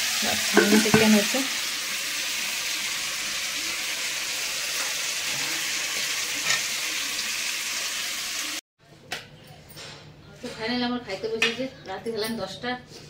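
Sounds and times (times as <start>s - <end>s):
food sizzling in a pan: 0.0s - 8.6s.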